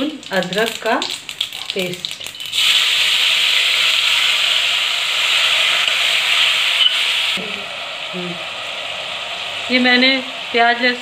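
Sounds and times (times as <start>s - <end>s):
paste sizzling in hot oil: 0.0s - 11.0s.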